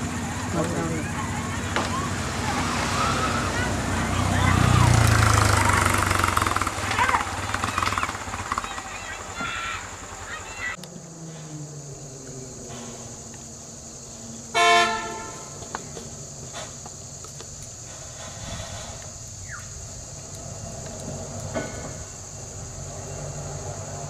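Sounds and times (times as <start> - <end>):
vehicle engine running: 0.0 - 18.3
vehicle horn blast: 14.5 - 15.6.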